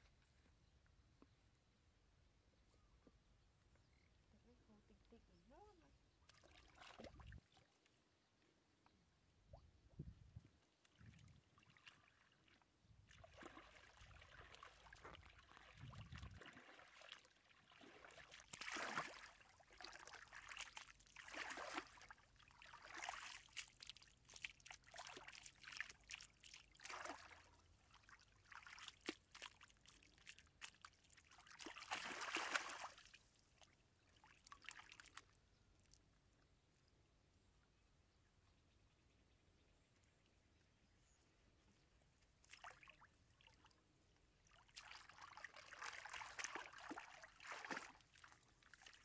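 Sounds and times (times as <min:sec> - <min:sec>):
hands splashing wet mud in water: 0:06.3 - 0:07.6, 0:10.8 - 0:33.2, 0:34.2 - 0:35.3, 0:42.4 - 0:43.0, 0:44.5 - 0:49.0.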